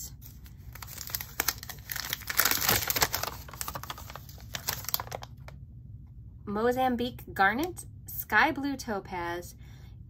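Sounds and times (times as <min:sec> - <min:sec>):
paper rustling: 0:00.2 - 0:05.3.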